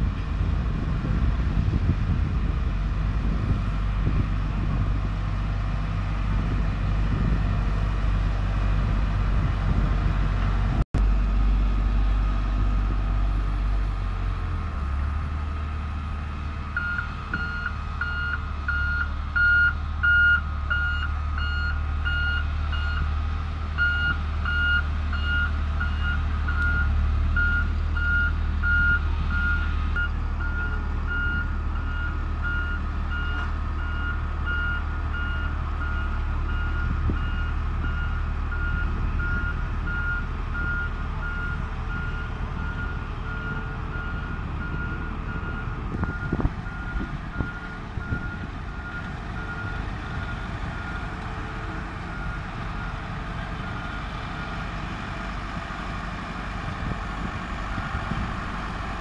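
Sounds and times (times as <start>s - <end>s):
diesel engine running: 0.0s - 59.0s
reversing alarm beeping: 16.8s - 23.1s, 23.8s - 51.2s.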